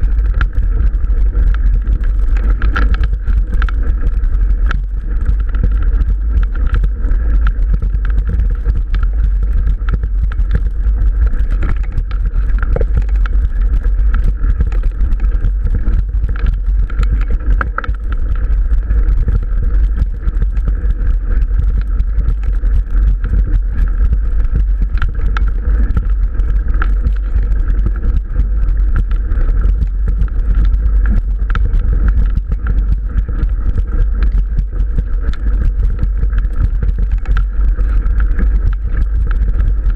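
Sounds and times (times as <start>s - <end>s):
bike clicks and rattles: 0.0s - 39.9s
wind buffeting microphone: 0.0s - 39.9s.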